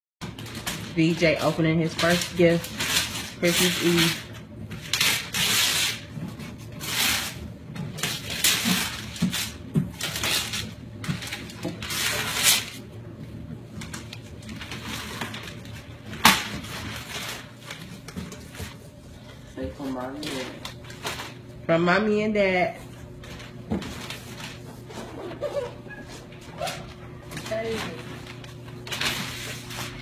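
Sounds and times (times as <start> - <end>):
wrapping paper tearing and crumpling: 0.2 - 12.9, 13.8 - 18.8, 19.8 - 21.6, 23.0 - 30.0.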